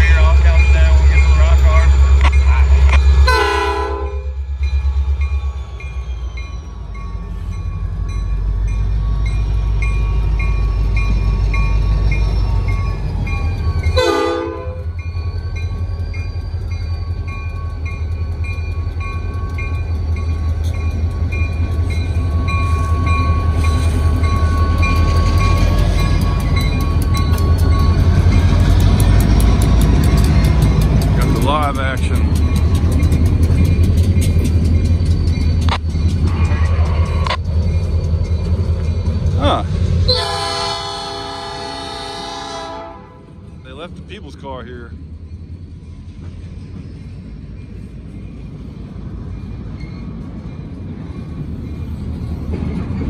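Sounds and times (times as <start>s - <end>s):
diesel locomotive engine rumble: 0.0s - 53.0s
train horn toot: 3.2s - 4.4s, 14.0s - 14.9s, 40.1s - 43.4s.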